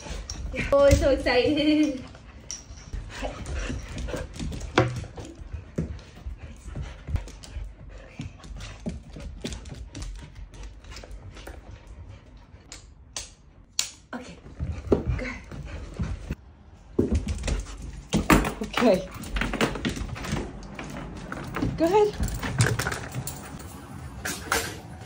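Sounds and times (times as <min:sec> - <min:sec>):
dog panting: 0:01.5 - 0:12.7.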